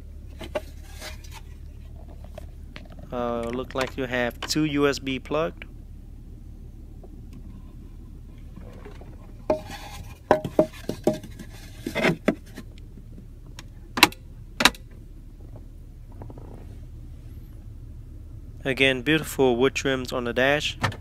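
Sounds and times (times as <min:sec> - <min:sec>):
low steady hum: 0:00.0 - 0:21.0
clicks and rubbing of hard trim: 0:00.3 - 0:04.6, 0:08.4 - 0:14.9.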